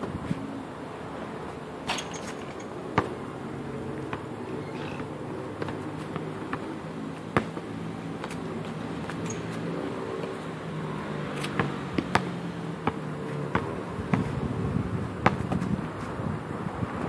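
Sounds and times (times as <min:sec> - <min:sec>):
steady background hum: 0:00.0 - 0:16.4
basketball bouncing on concrete: 0:01.9 - 0:03.2, 0:04.0 - 0:10.3, 0:11.4 - 0:16.2.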